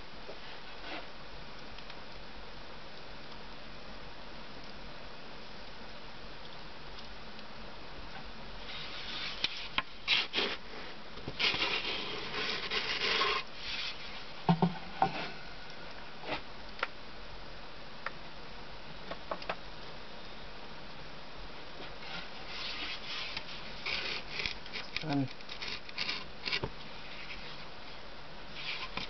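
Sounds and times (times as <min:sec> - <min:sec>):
wooden peel scraping oven floor: 0:08.7 - 0:14.2, 0:22.0 - 0:24.9.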